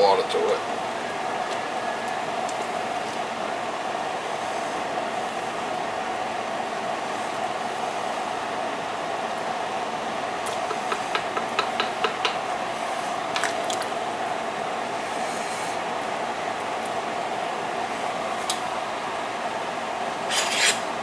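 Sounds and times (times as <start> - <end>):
pot of soup hissing: 14.8 - 15.9.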